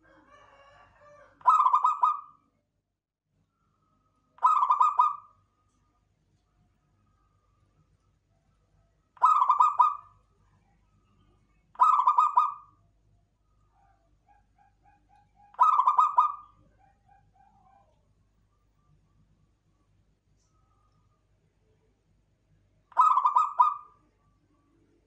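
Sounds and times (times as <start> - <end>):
dove cooing: 1.0 - 2.3, 4.4 - 5.3, 9.2 - 10.1, 11.8 - 12.7, 13.8 - 18.0, 23.0 - 23.9.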